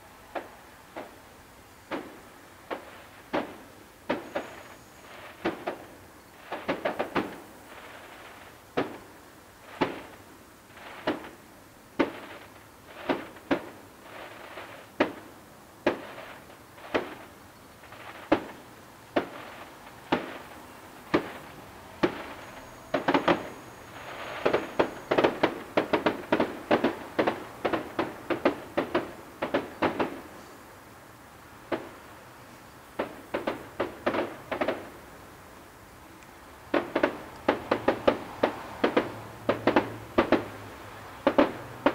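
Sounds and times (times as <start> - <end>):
distant fireworks bangs: 0.0 - 30.4, 31.6 - 32.2, 32.9 - 35.0, 36.6 - 41.9.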